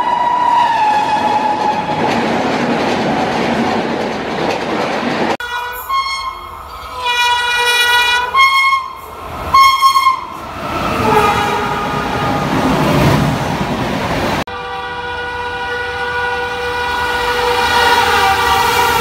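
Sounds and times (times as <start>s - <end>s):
train rushing past: 0.0s - 19.0s
locomotive horn blasts: 5.4s - 10.4s, 11.0s - 12.5s, 14.5s - 19.0s.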